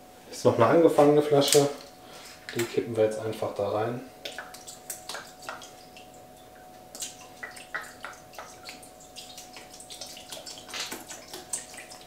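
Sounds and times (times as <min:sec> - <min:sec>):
sauce dripping into a metal bowl: 0:04.2 - 0:12.0.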